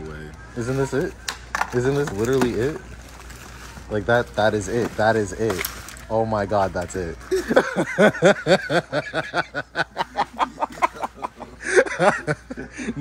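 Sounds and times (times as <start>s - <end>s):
man laughing hard: 7.3s - 13.0s.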